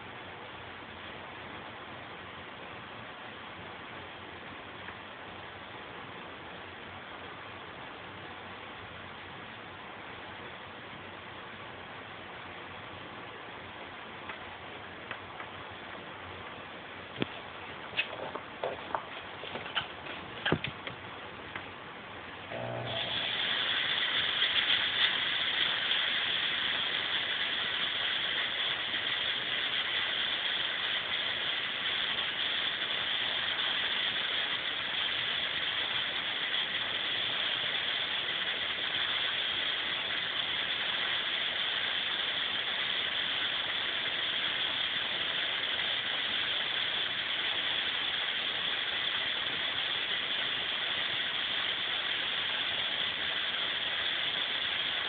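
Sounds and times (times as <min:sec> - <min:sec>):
fog machine hissing: 0:22.4 - 0:55.0.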